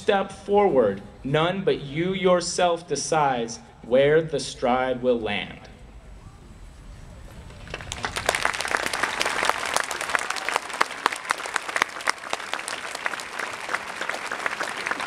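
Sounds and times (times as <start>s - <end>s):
audience applauding: 7.3s - 15.0s.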